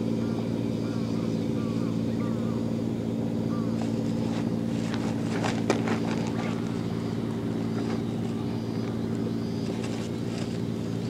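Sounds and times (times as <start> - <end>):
boat engine idling: 0.0 - 11.0
clicks and rustles of hands: 3.8 - 6.8.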